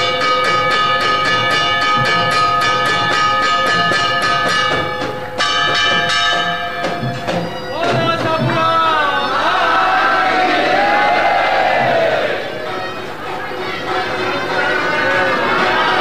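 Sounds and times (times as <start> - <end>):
temple bells ringing fast: 0.0 - 9.3
crowd shouting and chanting: 7.7 - 16.0.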